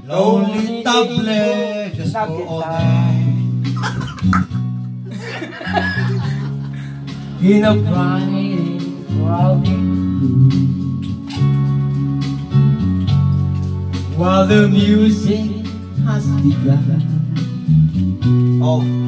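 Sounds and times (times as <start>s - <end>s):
song with guitar and bass: 0.0s - 19.0s.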